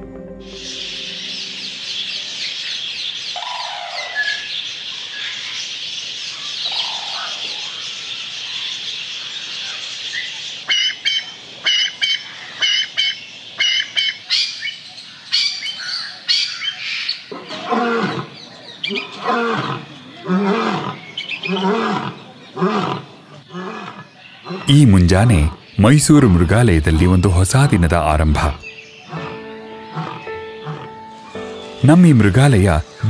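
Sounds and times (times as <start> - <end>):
low bird calls: 0.4 - 31.9
loud sharp bird call: 0.5 - 5.6, 9.6 - 19.9
small birds chirping: 0.6 - 17.4, 18.1 - 33.0.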